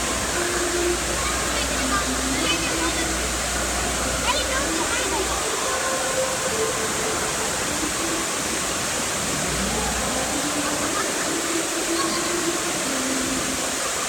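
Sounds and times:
faint voices and shouts: 0:00.0 - 0:14.0
rushing water in wave pool: 0:00.0 - 0:14.0.

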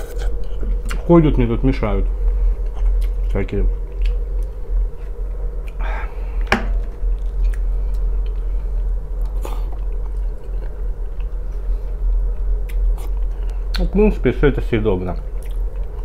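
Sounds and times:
steady low hum: 0:00.0 - 0:16.0
person chewing wetly: 0:02.6 - 0:03.3, 0:07.2 - 0:11.4, 0:12.1 - 0:13.5, 0:15.4 - 0:16.0.

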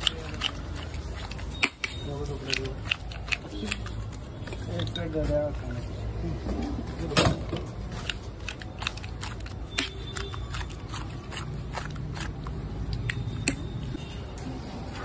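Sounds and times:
metal spoon scraping steel pots: 0:00.0 - 0:05.8.

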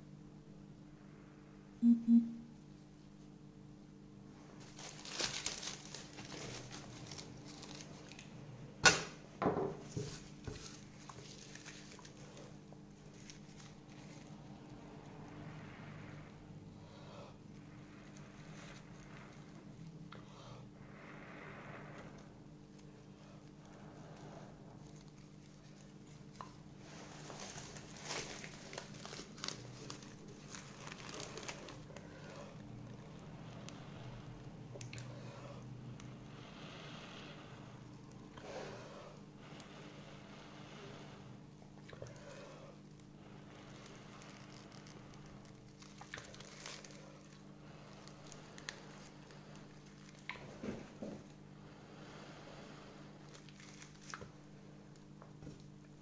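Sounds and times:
dry bark crinkling and crackling: 0:04.6 - 0:08.4, 0:09.9 - 0:14.6, 0:22.7 - 0:35.6, 0:41.8 - 0:51.4, 0:53.2 - 0:55.8.

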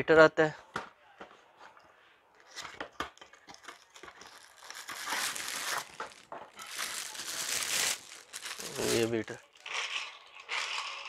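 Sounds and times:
plastic wrapping and cardboard crinkling: 0:02.4 - 0:10.0.

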